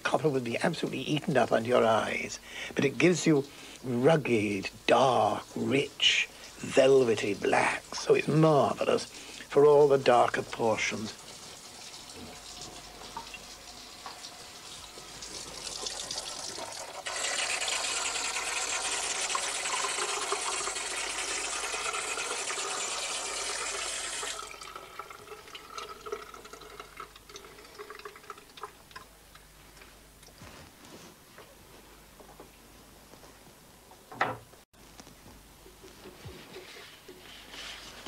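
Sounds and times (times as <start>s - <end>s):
tap water running onto metal plate: 10.3s - 29.4s
faint dripping: 24.4s - 30.4s.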